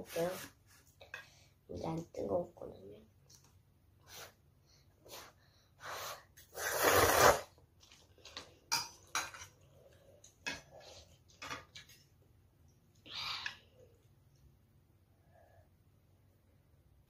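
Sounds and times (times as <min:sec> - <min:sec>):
child slurping noodles: 0:05.1 - 0:07.6.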